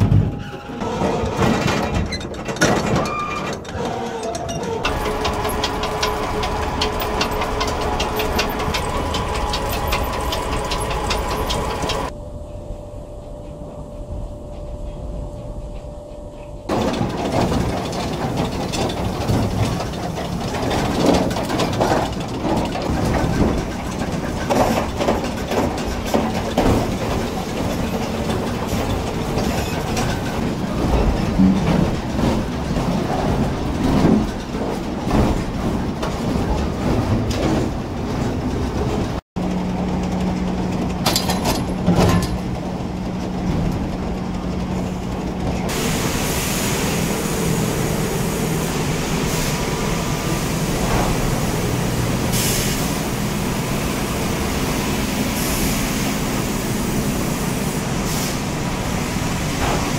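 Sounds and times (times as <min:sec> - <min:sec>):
machinery clattering and knocking: 0:00.0 - 0:12.2, 0:15.4 - 0:59.9
conveyor low hum: 0:03.7 - 0:59.9
steady engine tone: 0:04.5 - 0:33.8.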